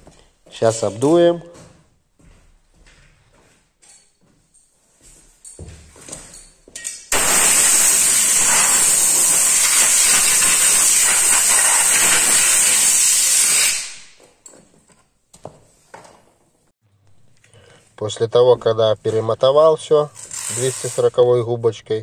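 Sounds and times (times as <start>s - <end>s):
compressed air blow gun hissing: 7.2s - 14.1s.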